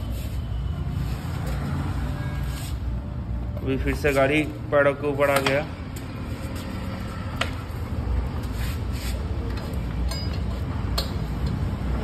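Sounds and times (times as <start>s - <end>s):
motorcycle wheel and chain clicks: 9.5s - 11.7s.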